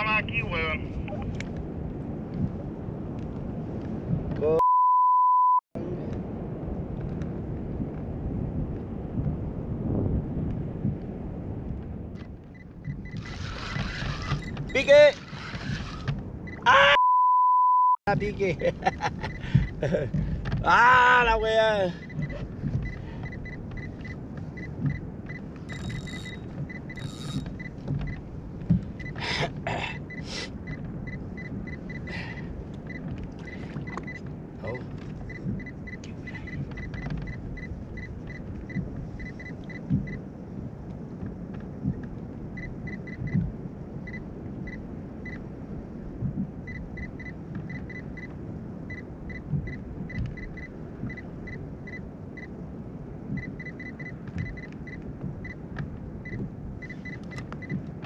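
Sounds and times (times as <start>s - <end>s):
wind rumbling on microphone: 0.0s - 4.6s, 5.8s - 16.9s, 18.1s - 58.0s
fishing reel clicking: 27.0s - 27.4s.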